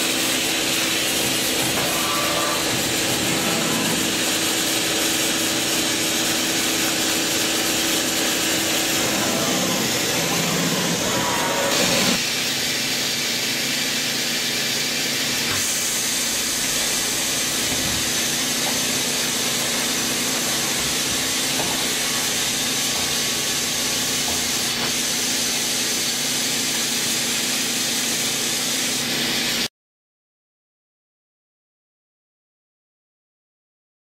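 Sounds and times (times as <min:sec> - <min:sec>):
machining center running: 0:00.0 - 0:12.9, 0:14.9 - 0:25.9.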